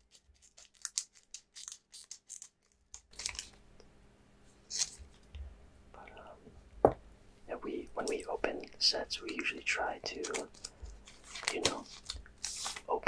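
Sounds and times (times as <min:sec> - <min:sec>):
foil rustling: 0:00.0 - 0:03.6, 0:10.2 - 0:13.0
foil wrapper tearing: 0:00.0 - 0:03.6, 0:04.7 - 0:05.0, 0:10.2 - 0:13.0.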